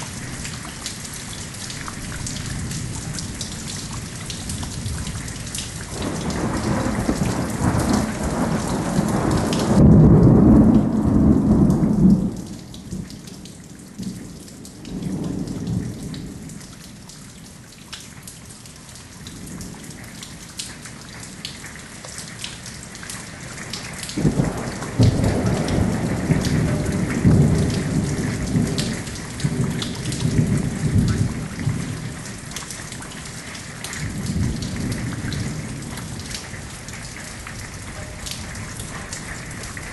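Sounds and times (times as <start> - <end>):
rain pattering: 0.0 - 39.9
thunder rumbling: 2.1 - 13.1, 24.1 - 32.5, 34.0 - 39.9.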